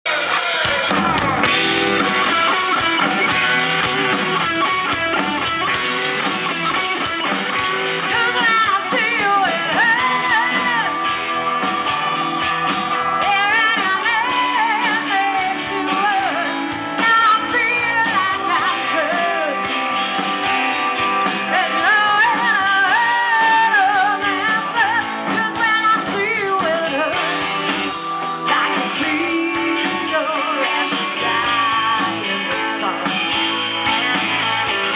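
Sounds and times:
drums: 0.0s - 34.9s
bass guitar: 0.1s - 34.9s
electric guitars: 0.1s - 34.9s
woman singing: 7.9s - 11.2s, 13.2s - 20.0s, 21.3s - 27.6s, 28.2s - 34.9s.

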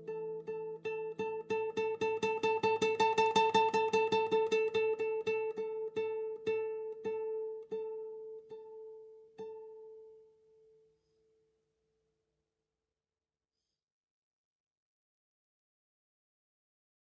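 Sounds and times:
fingerpicked acoustic guitar: 0.0s - 11.4s.

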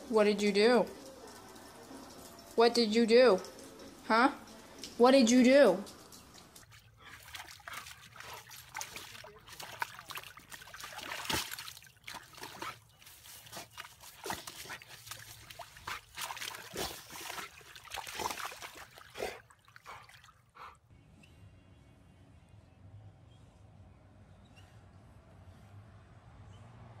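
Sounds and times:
dog sloshing in mud: 6.6s - 20.8s.

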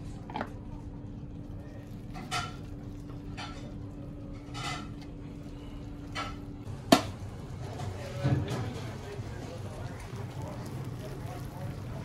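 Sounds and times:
steady low hum: 0.0s - 8.1s
metal utensil scraping a pot: 3.3s - 5.0s.

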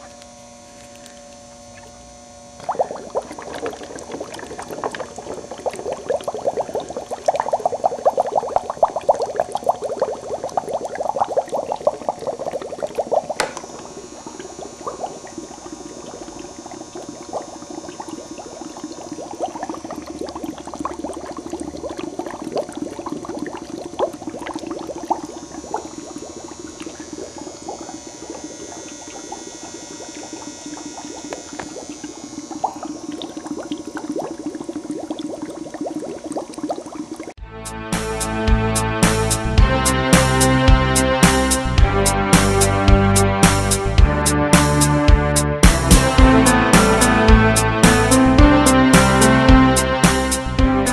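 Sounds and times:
gas bubbling through water: 1.0s - 37.4s
sharp click: 13.4s - 13.7s.

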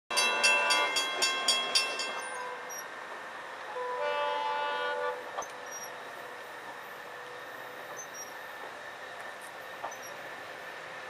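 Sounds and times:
distant locomotive horn chord: 3.7s - 5.4s.

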